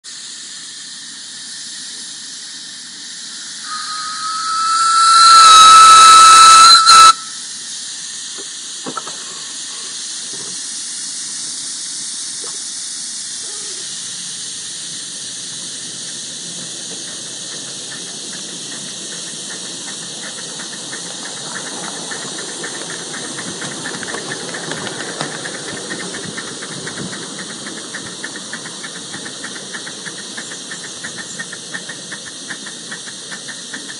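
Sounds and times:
steam hissing: 0.0s - 33.9s
steam locomotive exhaust beats: 0.1s - 33.9s
steam whistle blowing: 3.6s - 7.5s.

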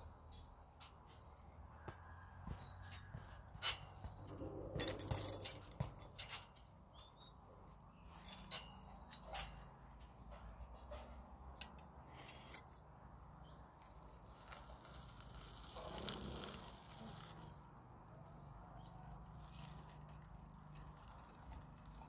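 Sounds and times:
light metal clicks and clinks: 2.9s - 12.8s.

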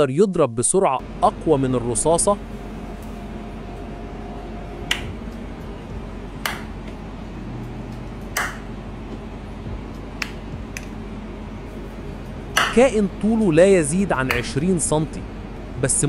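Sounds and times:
steady low hum: 0.7s - 16.0s
mantis shrimp striking clicks: 12.6s - 12.8s.

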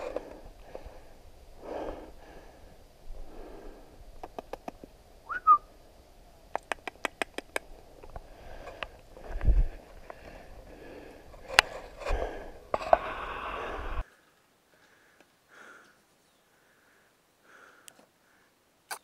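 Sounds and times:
sharp clicks: 4.2s - 4.9s, 6.5s - 9.0s
person whistling: 5.3s - 5.7s.

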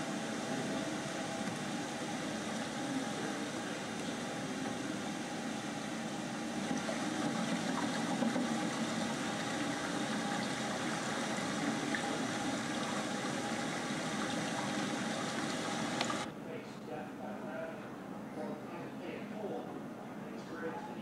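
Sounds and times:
falling water roar over loudspeaker: 0.0s - 16.3s.

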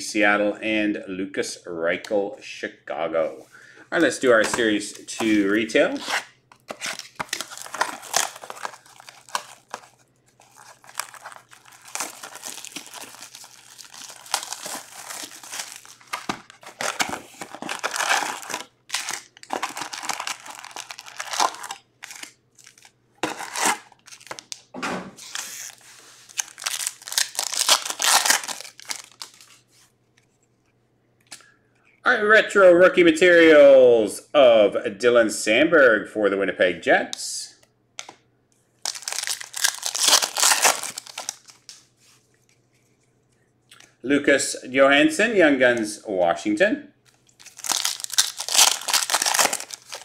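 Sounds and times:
wrappers tearing and crinkling: 5.8s - 24.6s, 25.2s - 29.7s, 38.8s - 41.9s, 47.1s - 50.0s.

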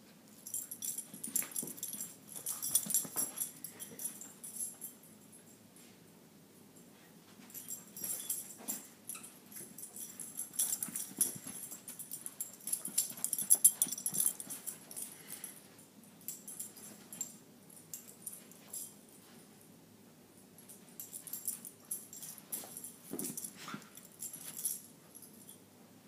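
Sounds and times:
dog playing with plush toy: 7.6s - 15.6s.

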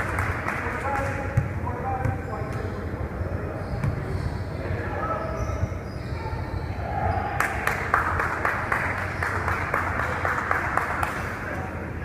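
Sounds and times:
people clapping: 0.0s - 1.3s, 7.4s - 11.7s.

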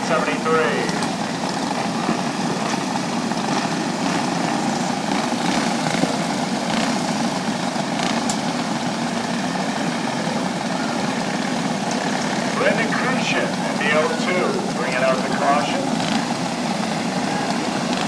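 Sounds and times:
kart engines idling: 0.0s - 18.0s.

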